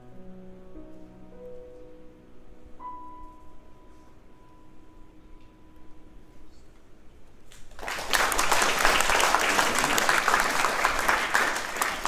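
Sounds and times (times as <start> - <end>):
audience applause: 7.6 - 12.0.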